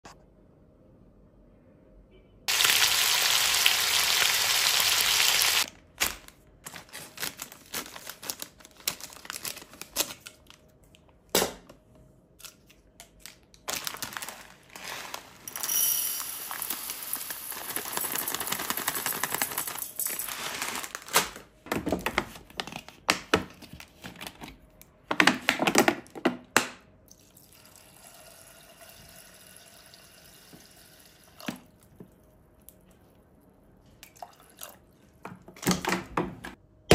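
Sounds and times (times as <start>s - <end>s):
plastic bag crinkling: 6.0s - 10.7s, 13.2s - 21.6s
dry grain rattling into steel pot: 14.8s - 20.8s.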